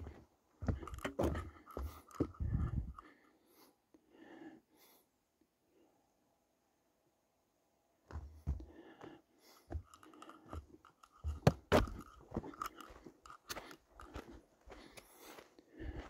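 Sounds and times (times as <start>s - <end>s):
footsteps crunching on dirt: 10.5s - 16.0s.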